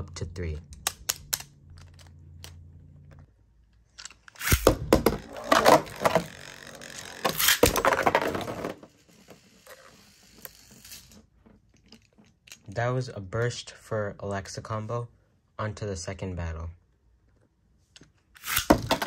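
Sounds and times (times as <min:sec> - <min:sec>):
spinning top bursting apart: 0:04.3 - 0:08.2.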